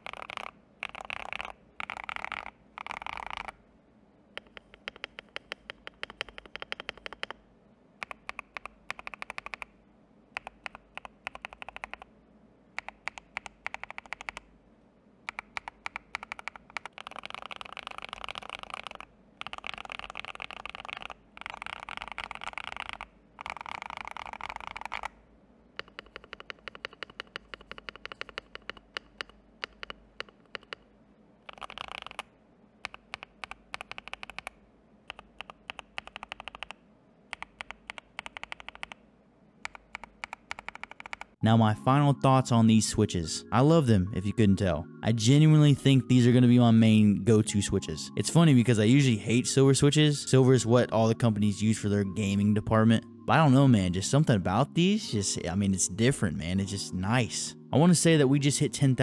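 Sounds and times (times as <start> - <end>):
typing on mechanical keyboard: 0.0 - 3.6, 4.4 - 7.4, 8.0 - 9.8, 10.4 - 12.1, 12.8 - 14.5, 15.3 - 25.2, 25.8 - 30.8, 31.4 - 39.0, 39.6 - 41.4.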